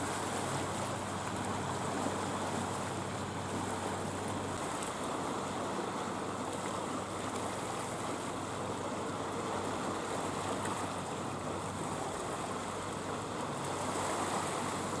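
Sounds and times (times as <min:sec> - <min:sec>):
water lapping at rocky shore: 0:00.0 - 0:15.0.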